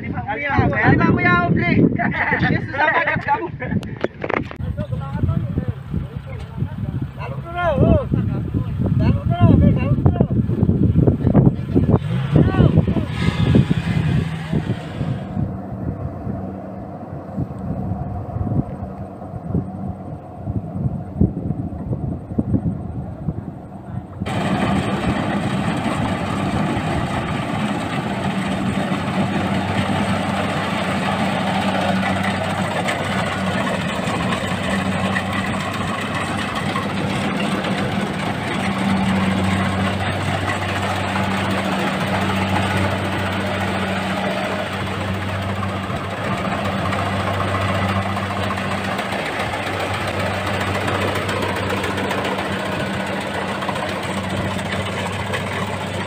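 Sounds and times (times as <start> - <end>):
harvester engine drone: 0.0 - 56.0
machinery clatter: 24.2 - 56.0.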